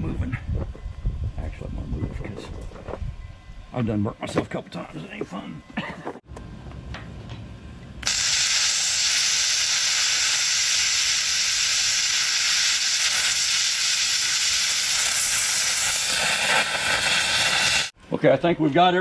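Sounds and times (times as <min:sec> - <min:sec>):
plasma cutter hissing: 0:08.0 - 0:18.0.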